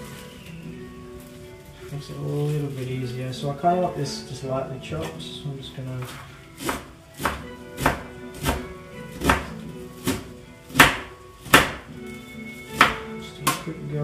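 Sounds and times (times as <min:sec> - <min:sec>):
knife chopping on chopping board: 0:06.0 - 0:11.9, 0:12.7 - 0:13.7.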